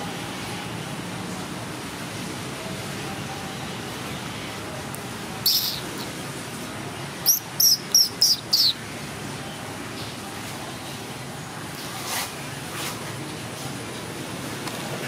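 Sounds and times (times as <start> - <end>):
small bird chirping: 5.4 - 6.1, 7.2 - 8.8.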